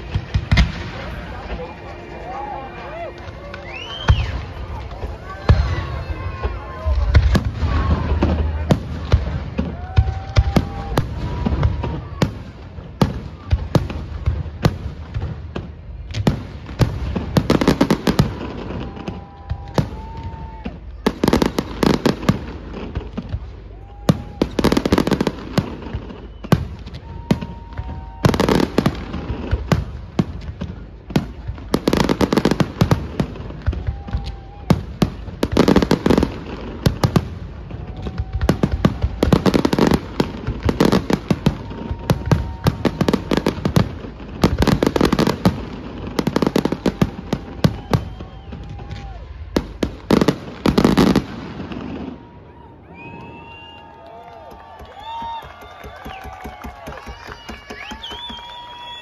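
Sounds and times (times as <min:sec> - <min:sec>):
firework crackling: 0:00.0 - 0:59.0
firework shells bursting: 0:54.5 - 0:59.0.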